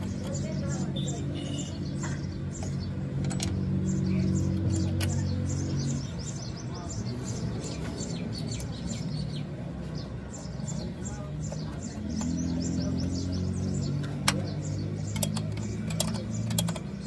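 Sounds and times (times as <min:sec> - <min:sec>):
small birds chirping: 0:00.0 - 0:17.0.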